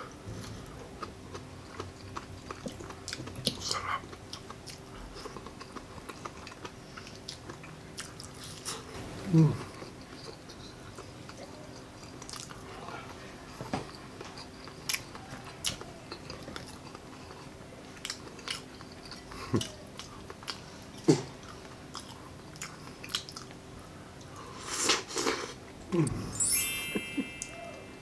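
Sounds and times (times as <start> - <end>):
chewing with wet smacks: 0.9 - 8.9, 9.6 - 13.2, 13.8 - 23.6.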